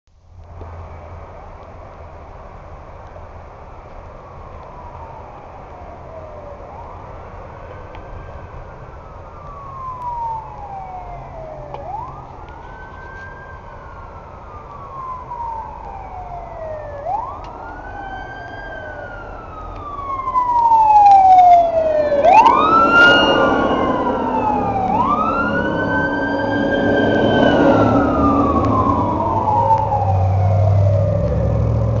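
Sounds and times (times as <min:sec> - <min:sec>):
fire engine siren wailing: 0:00.7 - 0:32.0
higher siren wailing: 0:04.1 - 0:32.0
heavy engine rumbling: 0:21.4 - 0:32.0.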